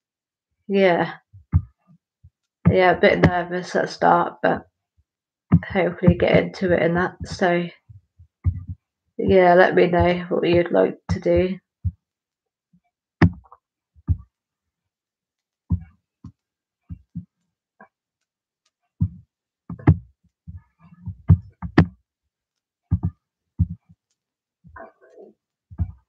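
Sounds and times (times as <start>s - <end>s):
dull knocks and thumps: 1.4s - 1.8s, 5.5s - 12.0s, 13.2s - 14.3s, 15.7s - 17.4s, 19.0s - 22.0s, 22.9s - 23.9s, 25.7s - 26.0s.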